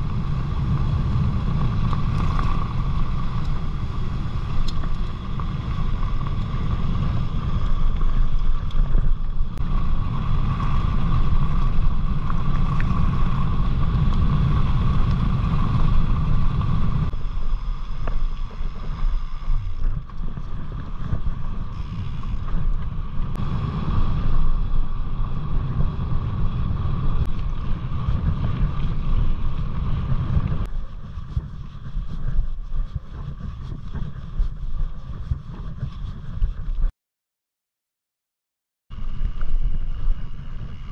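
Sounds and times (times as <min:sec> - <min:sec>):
bike tyres crunching on gravel: 0:00.0 - 0:31.8
bike tyre hum on tarmac: 0:00.0 - 0:36.9, 0:38.9 - 0:40.9
wind buffeting microphone: 0:00.0 - 0:36.9, 0:38.9 - 0:40.9.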